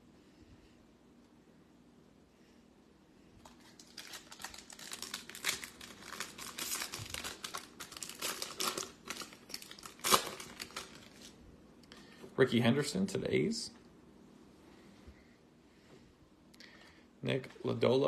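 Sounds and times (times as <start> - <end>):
foil wrapper crinkling and tearing: 3.4 - 11.4.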